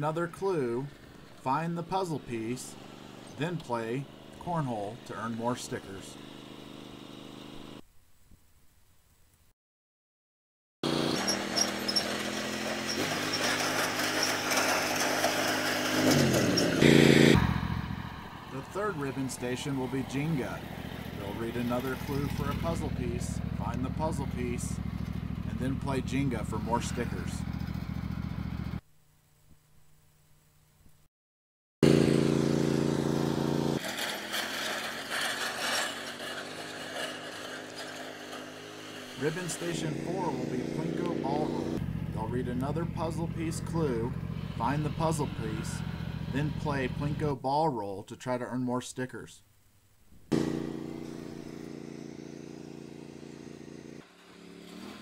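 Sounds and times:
lawn tractor engine running: 0.3 - 7.8, 10.8 - 28.8, 31.8 - 47.3, 50.3 - 55.0
trailer cart clattering: 10.9 - 16.9, 20.0 - 25.6, 33.8 - 40.0.

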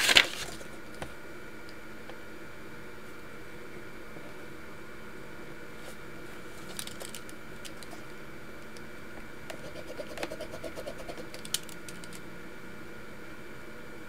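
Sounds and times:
paper handling ticks: 0.0 - 0.7, 6.6 - 8.2, 9.5 - 12.2
pen scratching on paper: 9.5 - 11.4.

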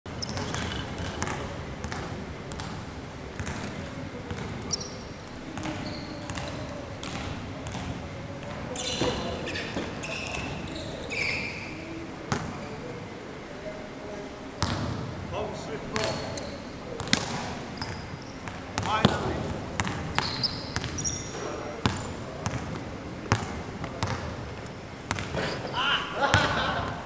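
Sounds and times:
shoe squeaks: 0.1 - 1.1, 4.7 - 6.8, 8.7 - 12.0, 15.9 - 16.8, 17.7 - 19.0, 20.1 - 22.2, 25.4 - 25.9
basketballs bouncing on court: 0.2 - 2.8, 3.4 - 11.0, 14.6 - 15.1, 16.0 - 24.4, 25.1 - 25.6.

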